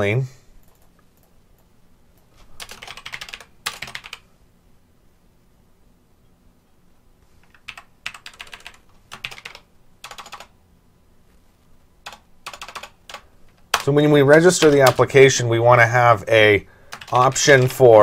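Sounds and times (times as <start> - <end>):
typing on keyboard: 0.6 - 1.7, 2.6 - 4.2, 7.4 - 10.6, 12.0 - 15.1, 16.9 - 17.8.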